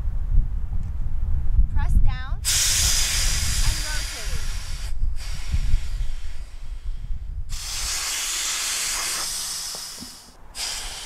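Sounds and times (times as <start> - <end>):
low rumbling noise: 0.0 - 11.0
air hissing from valve: 2.4 - 11.0.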